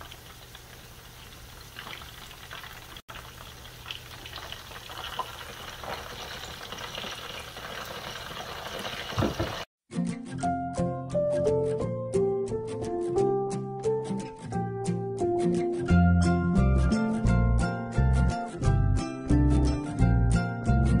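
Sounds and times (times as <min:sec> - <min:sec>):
chicken sizzling in hot oil: 0:00.0 - 0:09.7
loud knocks: 0:09.1 - 0:09.7.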